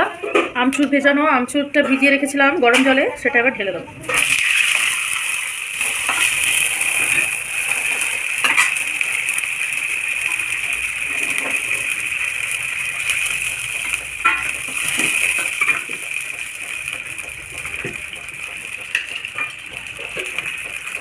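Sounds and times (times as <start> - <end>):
liquid hissing in wok: 4.1 - 21.0.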